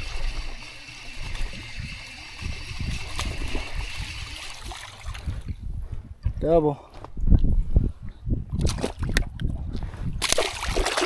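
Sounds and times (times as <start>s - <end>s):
water sloshing and trickling: 0.0s - 5.6s, 8.5s - 9.6s, 10.2s - 11.0s
wind rumble on microphone: 0.0s - 11.0s
fish splashing at surface: 10.2s - 11.0s.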